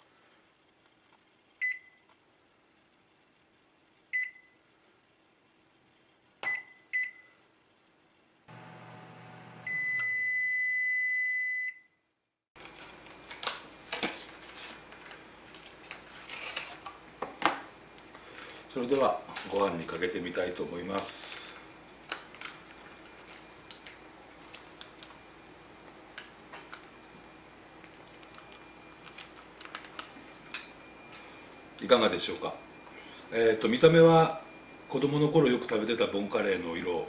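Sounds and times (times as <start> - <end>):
microwave oven humming: 0.0 - 12.0, 12.6 - 37.0
microwave keypad beeps: 1.6 - 2.0, 4.1 - 4.5, 6.4 - 7.3, 9.7 - 11.9
long microwave beep: 1.6 - 2.1, 4.1 - 4.6, 6.4 - 7.4, 8.5 - 12.0, 30.2 - 36.9.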